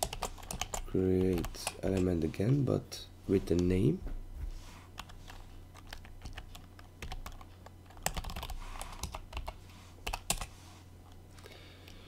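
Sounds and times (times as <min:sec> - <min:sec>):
typing on computer keyboard: 0:00.0 - 0:02.0, 0:05.8 - 0:10.5
low steady hum: 0:00.0 - 0:12.0.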